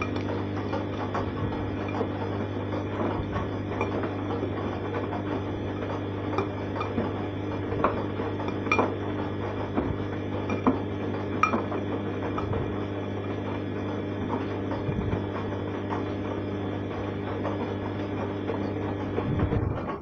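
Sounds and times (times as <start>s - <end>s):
washing machine drum tumbling: 0.0s - 20.0s.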